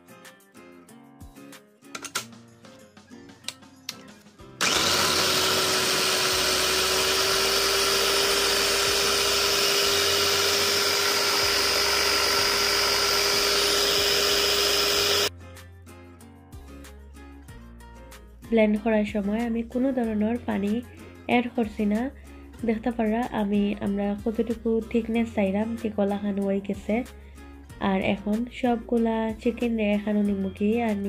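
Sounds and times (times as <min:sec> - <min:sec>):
food processor motor whine: 0:04.6 - 0:15.3
background music with bass: 0:14.8 - 0:31.0.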